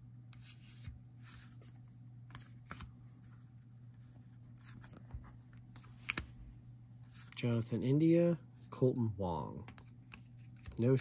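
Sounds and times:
steady low hum: 0.0s - 11.0s
paper cards sliding and tapping: 0.3s - 6.4s.

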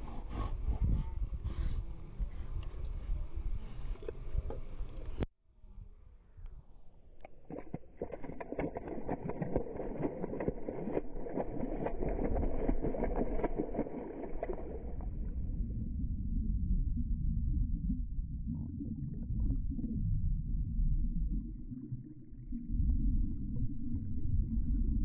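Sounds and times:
muffled underwater rumble: 0.0s - 25.0s
dog splashing through water: 7.4s - 15.1s
bubbling gurgles: 7.4s - 25.0s.

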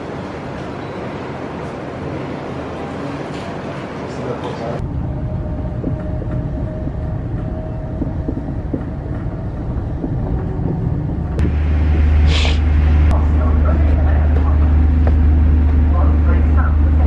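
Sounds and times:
train rumbling on rails: 0.0s - 17.0s
hiss: 12.2s - 12.6s.

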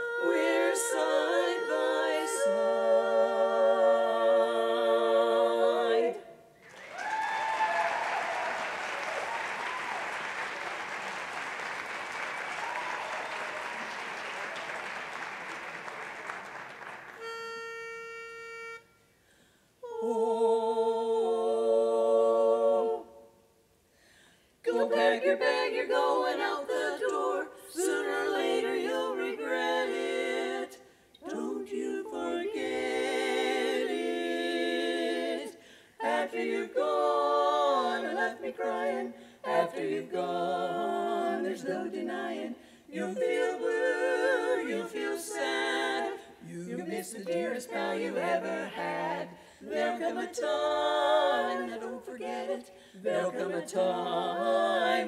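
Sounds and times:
women singing a cappella harmony: 0.0s - 6.6s, 19.8s - 23.6s, 24.5s - 55.0s.

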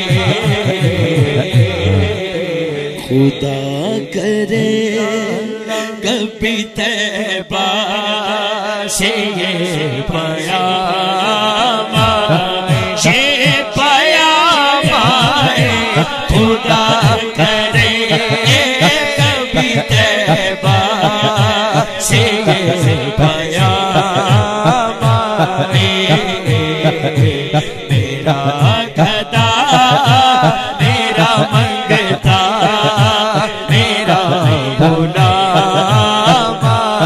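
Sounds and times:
low rhythmic beat: 0.0s - 3.0s
man singing into a microphone: 0.0s - 37.0s.

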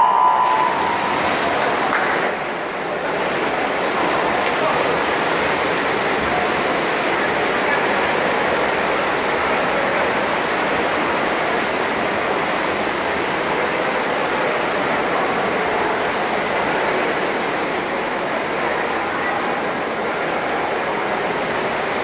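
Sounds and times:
swimmers splashing: 0.0s - 12.5s.

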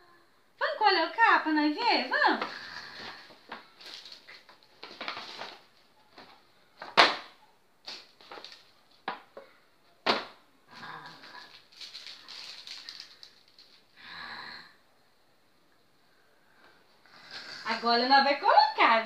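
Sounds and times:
packaging rustling: 2.9s - 6.4s, 7.9s - 9.0s, 11.2s - 13.9s.

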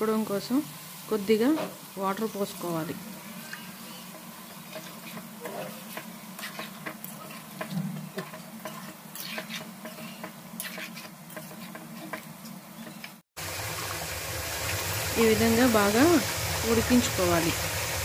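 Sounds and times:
gravy sizzling: 0.0s - 18.0s
spoon scraping steel pan: 3.4s - 13.1s.

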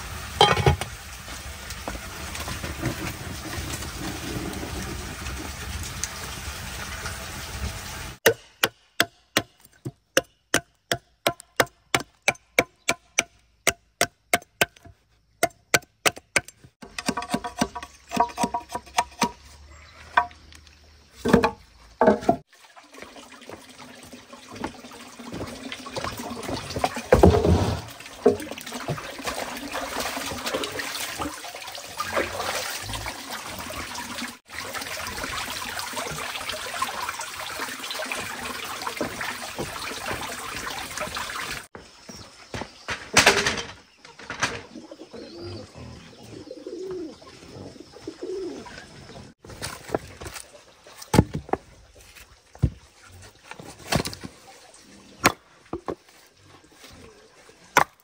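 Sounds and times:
water running into plastic basin: 0.0s - 8.2s, 22.4s - 41.7s
machete chopping bamboo: 8.2s - 19.4s.

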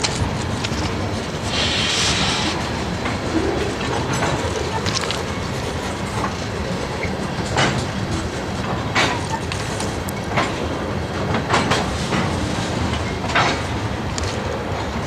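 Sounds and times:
steel wheels rumbling on rail: 0.0s - 15.0s
train wheels clacking: 0.0s - 15.0s.

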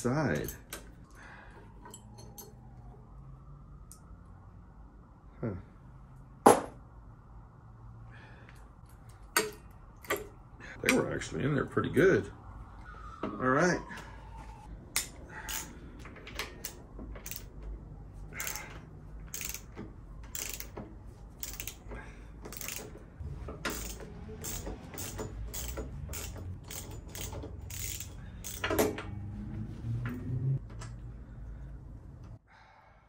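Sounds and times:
hand ratchet clicking: 16.3s - 17.5s, 18.4s - 20.8s, 21.4s - 23.0s, 23.6s - 29.1s.

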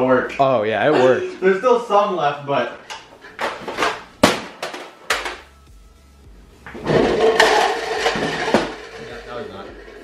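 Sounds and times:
plastic cups clattering: 3.3s - 5.4s, 6.7s - 10.0s.

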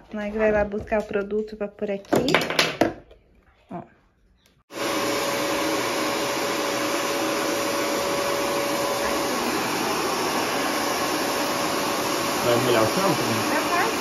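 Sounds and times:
extractor suction motor running: 4.7s - 14.0s.

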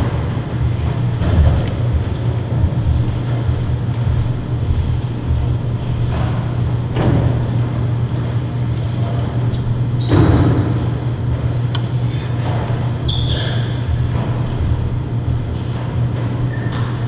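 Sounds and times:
low room rumble: 0.0s - 17.0s.

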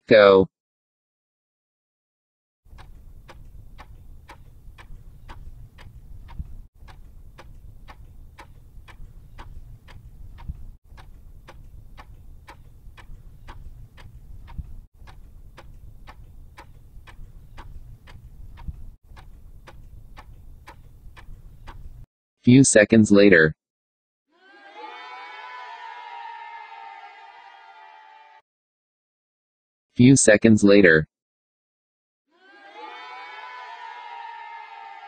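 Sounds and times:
clock ticking: 2.7s - 22.1s.

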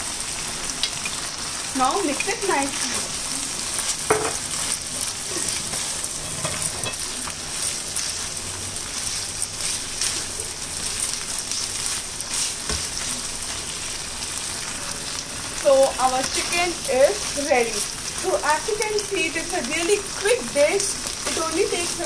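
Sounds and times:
meat sizzling in a pan: 0.0s - 22.0s
spatula scraping a pan: 5.2s - 7.1s.

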